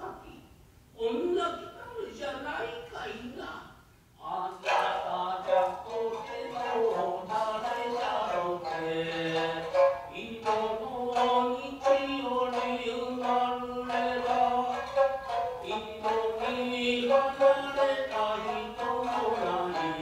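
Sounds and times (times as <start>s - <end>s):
plucked shamisen notes: 4.6s - 20.0s.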